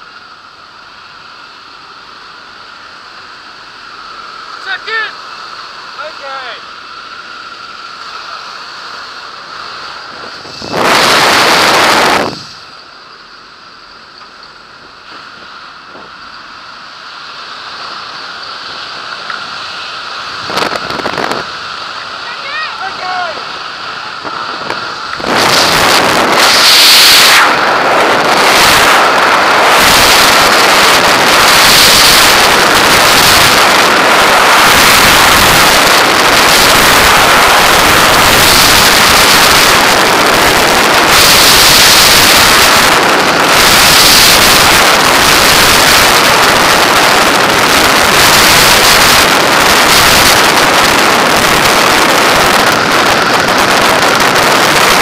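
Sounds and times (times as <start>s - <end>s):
freefall wind rushing over microphone: 0.0s - 55.0s.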